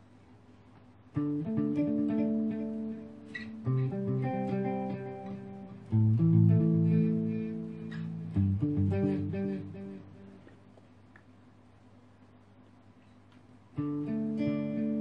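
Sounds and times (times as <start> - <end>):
clean guitar chords with delay: 1.2 - 10.5, 13.8 - 15.0.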